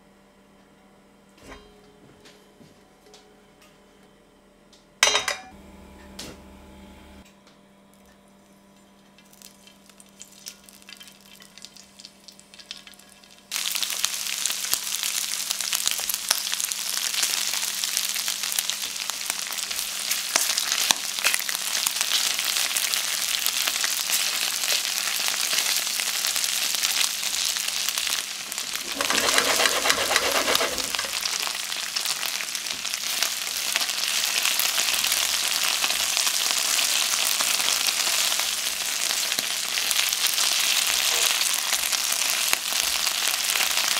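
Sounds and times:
meat sizzling in hot oil: 9.2s - 43.9s.

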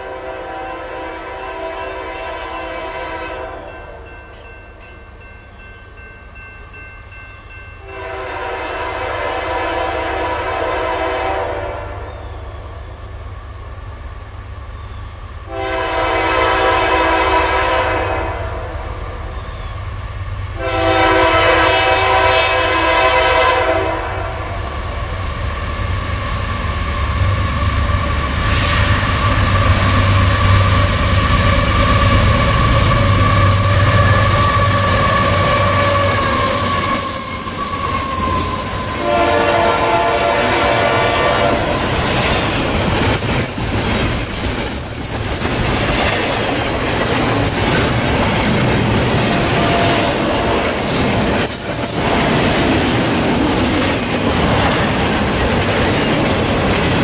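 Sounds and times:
locomotive air horn blasts: 0.0s - 4.0s, 7.8s - 12.2s, 15.5s - 18.8s, 20.6s - 24.6s, 31.4s - 42.0s
freight train rumble: 0.0s - 57.0s.

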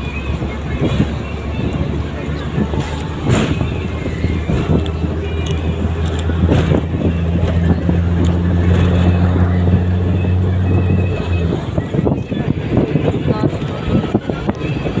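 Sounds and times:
vehicle engine drone: 0.0s - 15.0s
rattles and knocks: 2.5s - 9.1s.

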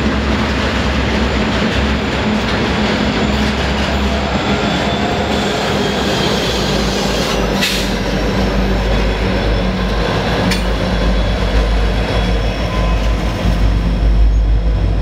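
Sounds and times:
diesel locomotives rumbling: 0.0s - 15.0s
train wheels rolling on rail: 0.0s - 15.0s
high squeal: 3.1s - 10.3s.

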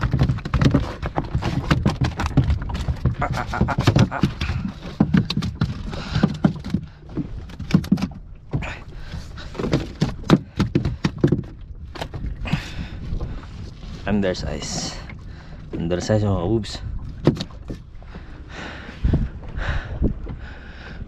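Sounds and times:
fish flapping on a deck: 0.0s - 8.2s.

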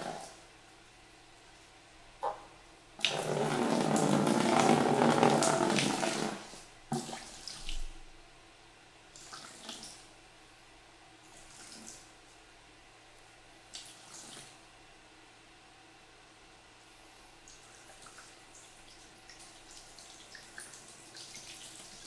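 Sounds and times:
watering can trickling: 3.0s - 7.1s.

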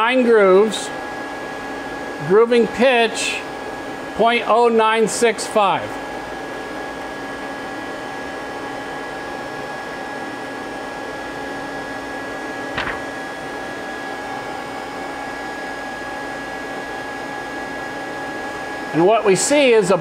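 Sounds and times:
machinery hum: 12.4s - 16.7s.

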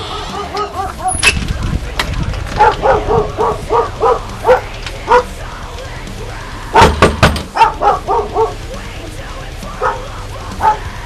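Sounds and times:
dog barking: 0.0s - 1.2s, 2.5s - 5.4s, 6.7s - 8.8s, 9.8s - 11.0s.

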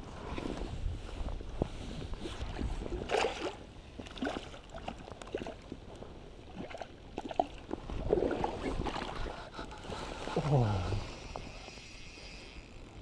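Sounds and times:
river water splashing: 3.0s - 5.7s.

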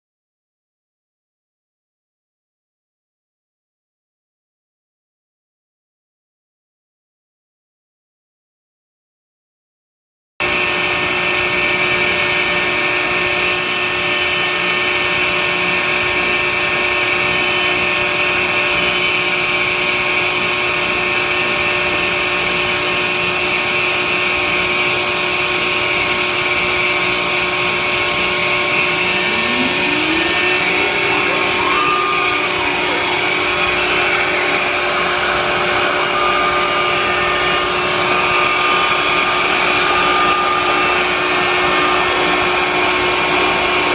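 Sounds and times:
router spindle whine: 10.5s - 43.9s
vacuum equipment rushing and humming: 24.8s - 43.9s.

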